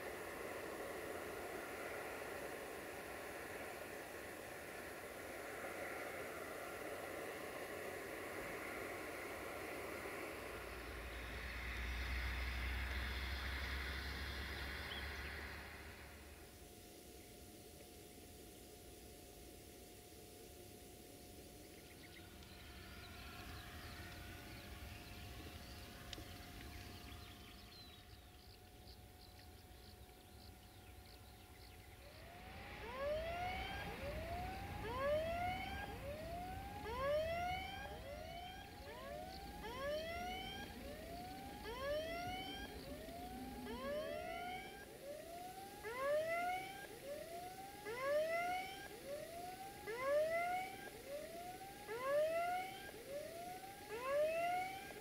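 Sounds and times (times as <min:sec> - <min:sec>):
level crossing alarm whooping: 0:31.9 - 0:55.0.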